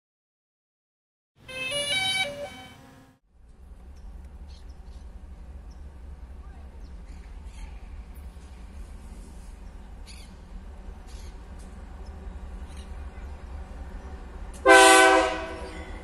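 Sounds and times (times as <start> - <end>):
faint bird chirps: 9.6 - 13.4.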